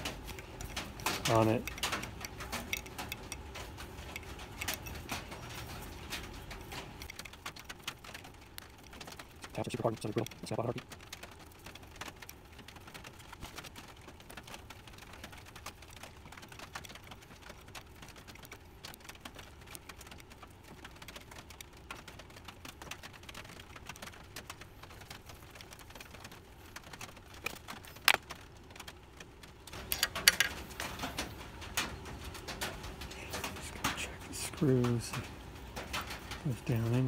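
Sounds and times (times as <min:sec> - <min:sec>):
louder clicks and knocks: 0:29.8 - 0:31.3.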